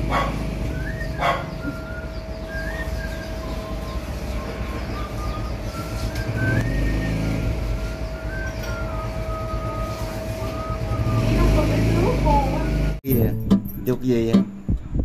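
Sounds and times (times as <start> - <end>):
low rumble of passing traffic: 0.0 - 15.0.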